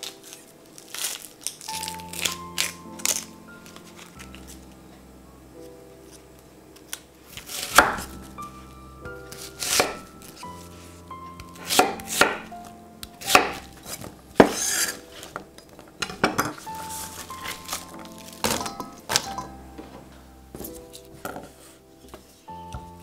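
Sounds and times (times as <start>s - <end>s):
knife cutting scrape: 13.4s - 15.3s.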